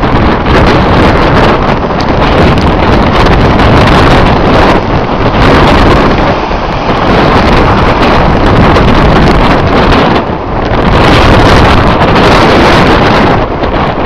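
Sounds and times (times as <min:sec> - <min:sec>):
waves surging against rocks: 0:00.0 - 0:14.0
wind blasting microphone: 0:00.0 - 0:14.0.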